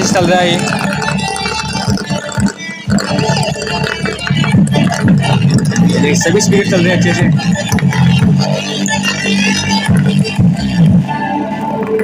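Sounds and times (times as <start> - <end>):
low bass line: 0.0 - 12.0
song through a speaker: 0.0 - 12.0.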